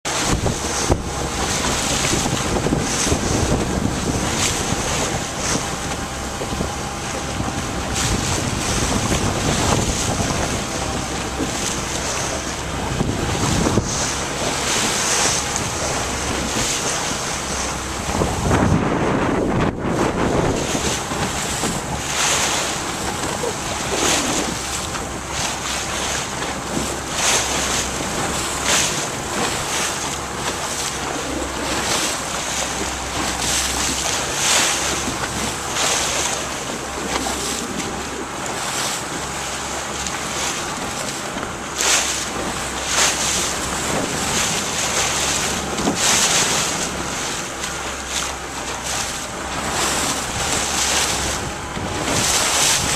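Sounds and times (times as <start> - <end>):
water splashing against hull: 0.0 - 52.9
wind over microphone: 0.1 - 52.9.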